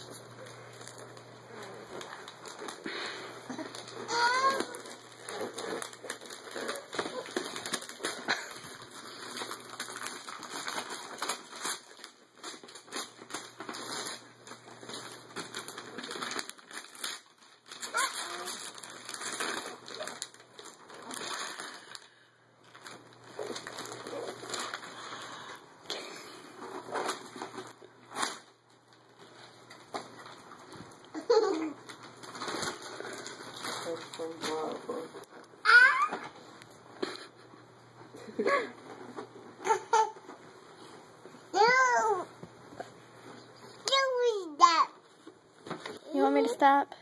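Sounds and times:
wrapping paper tearing: 0.0s - 37.5s, 38.5s - 40.9s
tissue paper rustling: 0.0s - 42.2s.

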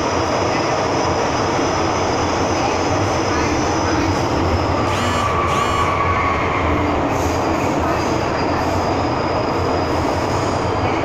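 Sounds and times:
train wheels rumbling on rail: 0.0s - 11.0s
brief squeal: 4.8s - 7.4s.

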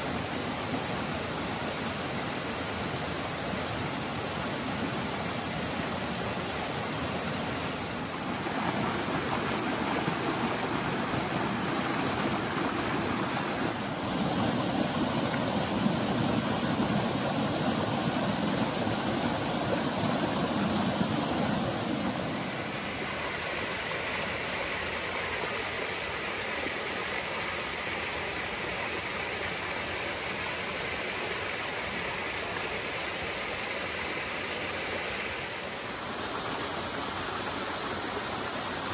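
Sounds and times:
stream cascading over rock: 0.0s - 38.9s.

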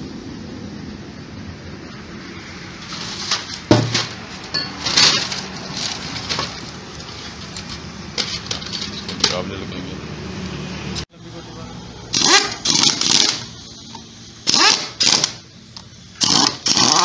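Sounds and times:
metal clinks and knocks: 3.8s - 6.7s.

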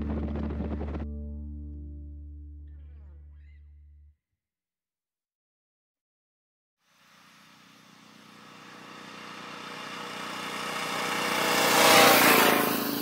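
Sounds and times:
vehicle engine passing: 0.0s - 1.3s, 8.6s - 13.0s.

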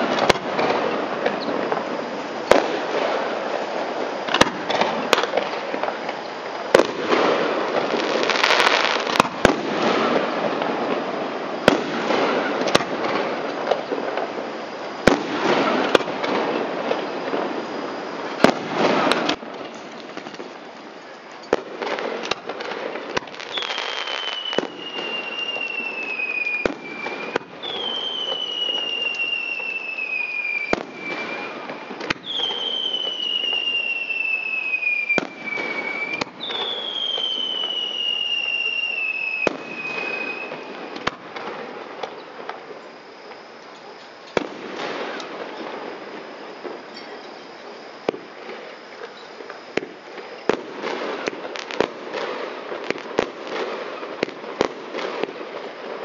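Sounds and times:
falling firework whistles: 0.0s - 56.0s
firework bangs: 0.0s - 56.0s.

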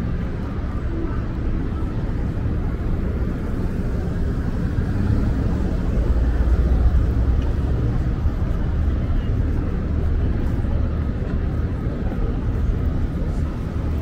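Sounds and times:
subway train rumble: 0.0s - 14.0s.

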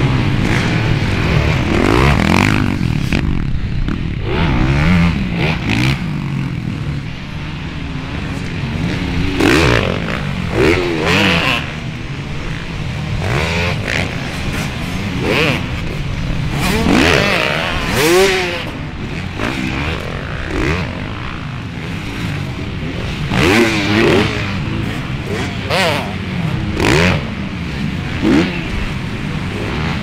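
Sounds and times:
motocross bike engines revving: 0.0s - 30.0s.

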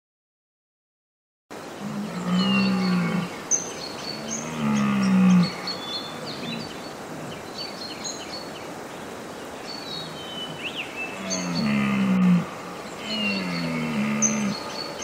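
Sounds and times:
small birds chirping: 1.7s - 15.0s
deer stag roaring: 1.8s - 3.4s, 4.2s - 6.7s, 11.2s - 14.8s.

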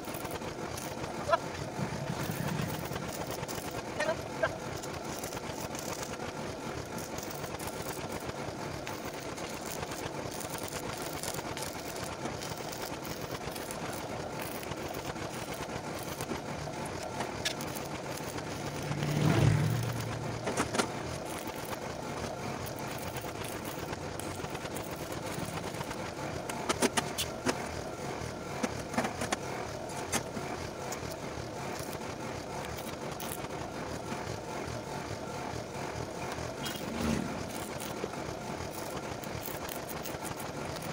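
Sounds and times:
arc welding crackling hiss: 7.0s - 26.0s
motor vehicle passing: 18.4s - 21.0s, 36.6s - 37.6s.

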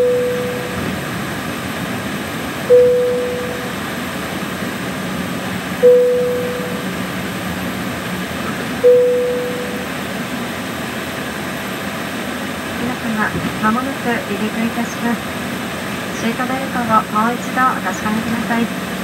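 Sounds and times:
cabin chime soft tone: 0.0s - 0.9s, 2.7s - 3.9s, 5.8s - 7.0s, 8.8s - 10.0s
cabin air and engine hum: 0.0s - 19.0s.

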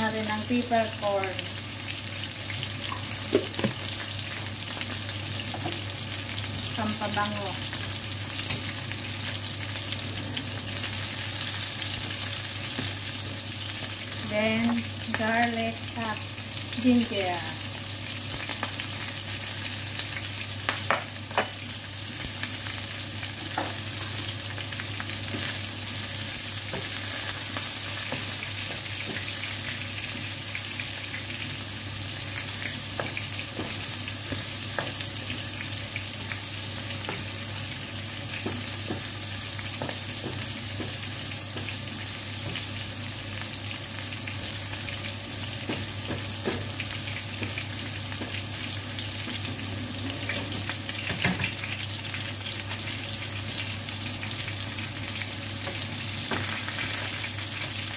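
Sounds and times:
chicken sizzling in hot oil: 0.0s - 57.9s.

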